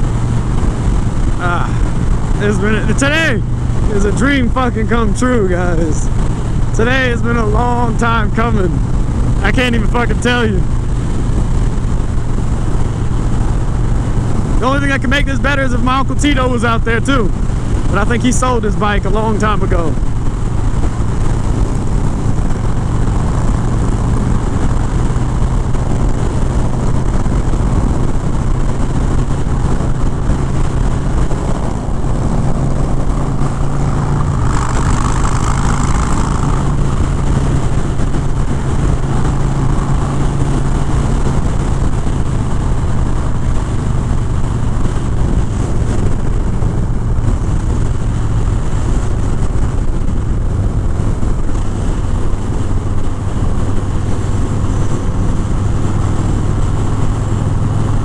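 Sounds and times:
motorcycle engine cruising: 0.0 - 58.0
road noise: 0.0 - 58.0
wind noise: 0.0 - 58.0.

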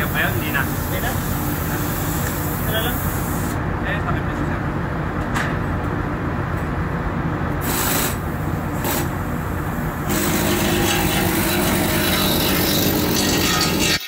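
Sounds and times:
hiss: 0.0 - 3.6, 7.6 - 9.2
machinery drone: 8.0 - 14.0
metal rubbing and scraping: 10.1 - 14.0.

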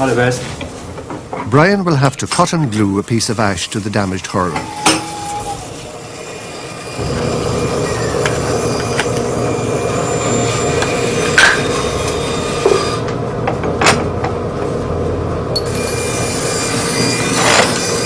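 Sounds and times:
power tool cutting wood: 4.8 - 13.1, 16.0 - 18.0.

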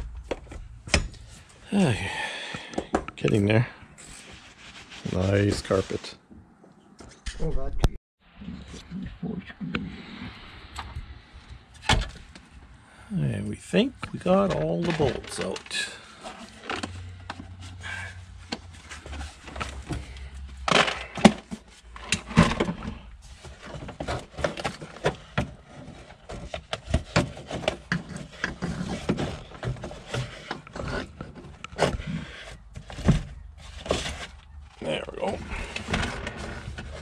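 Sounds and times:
plastic knocks rattles and scrapes: 0.0 - 1.4, 13.9 - 37.0.

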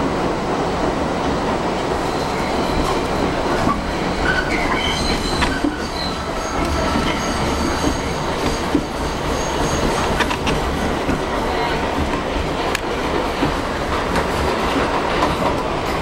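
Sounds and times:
train wheels rumbling on rail: 0.0 - 16.0
high wheel squealing: 2.0 - 11.8.

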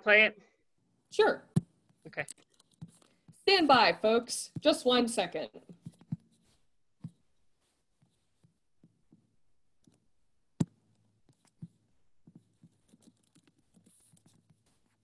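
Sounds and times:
keyboard and mouse clicks: 1.6 - 3.2.

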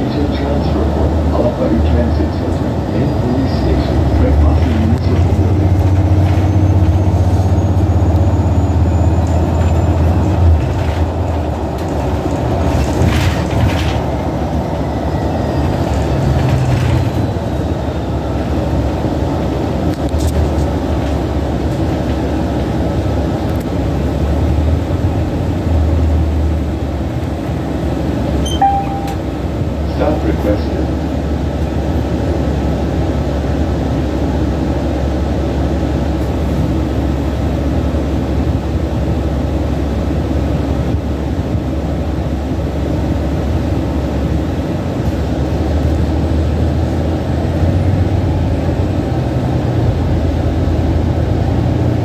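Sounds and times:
bus engine drone: 0.0 - 52.0
road noise: 0.0 - 52.0
short high beep: 28.4 - 29.3.

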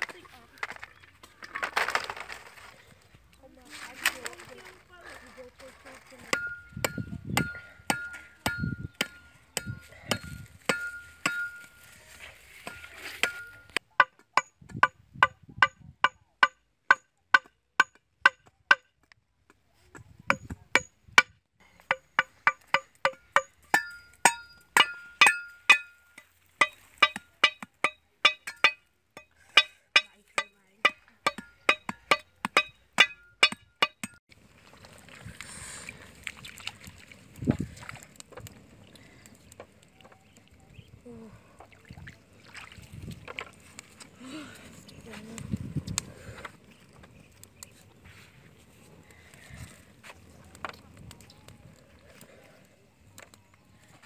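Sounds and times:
cleaver striking bamboo and wood: 6.3 - 11.8, 12.6 - 19.2, 20.3 - 34.2.

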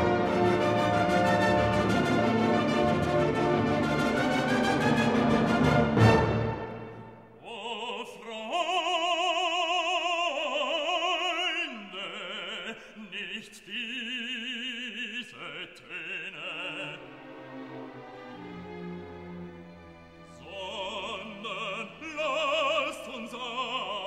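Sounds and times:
operatic voice singing: 7.4 - 17.4, 20.3 - 24.0.

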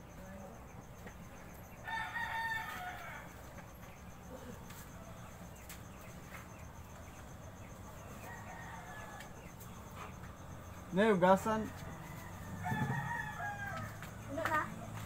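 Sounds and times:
small chirps and ticks: 0.0 - 15.0
distant rooster crowing: 1.7 - 3.9, 7.0 - 10.7, 11.4 - 15.0.

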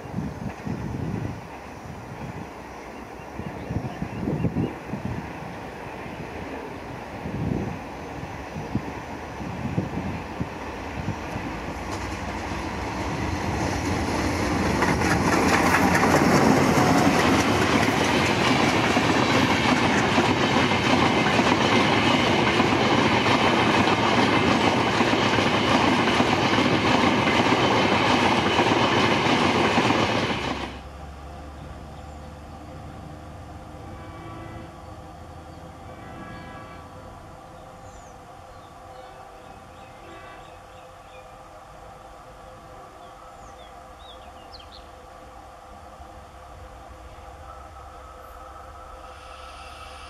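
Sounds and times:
coaches rushing on rails: 0.0 - 50.0
diesel locomotive passing: 0.0 - 50.0.

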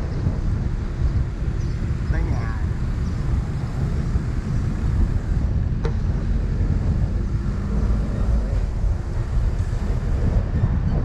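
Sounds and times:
vehicle rumble: 0.0 - 11.0
wind buffeting microphone: 0.0 - 11.0.

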